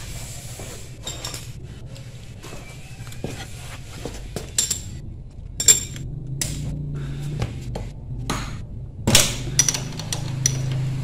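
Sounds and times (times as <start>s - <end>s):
spanner clinking on engine metal: 4.5s - 5.0s, 5.6s - 6.6s.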